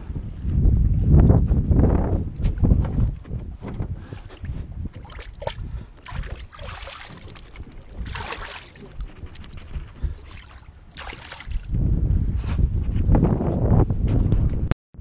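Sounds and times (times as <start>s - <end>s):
wind rumble on microphone: 0.0s - 14.7s
hands swishing in water: 4.0s - 11.8s.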